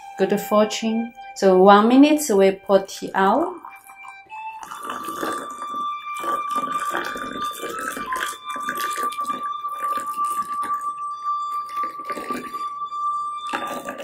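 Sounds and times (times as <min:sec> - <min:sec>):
steady high tone: 0:00.0 - 0:14.0
tea pouring into cups: 0:03.5 - 0:12.8.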